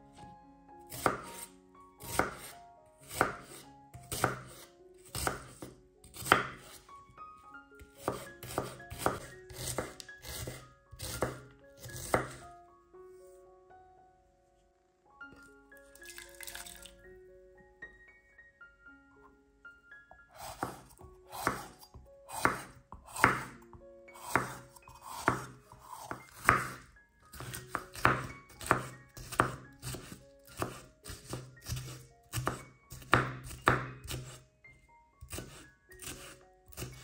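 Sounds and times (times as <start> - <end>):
soft background music: 0.0 - 37.0
knife chopping on wooden board: 0.9 - 6.8, 8.0 - 12.4, 20.4 - 23.6, 24.2 - 34.4, 35.2 - 37.0.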